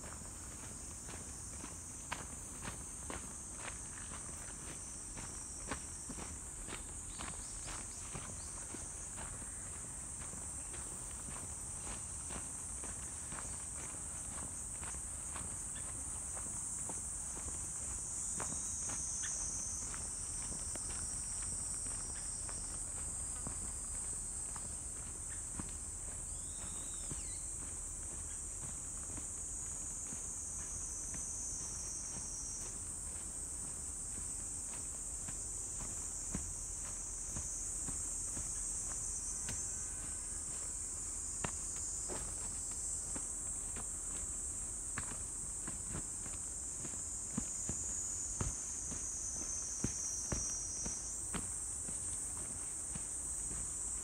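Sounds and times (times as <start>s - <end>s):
insects chorus: 0.0s - 54.0s
footsteps: 19.8s - 54.0s.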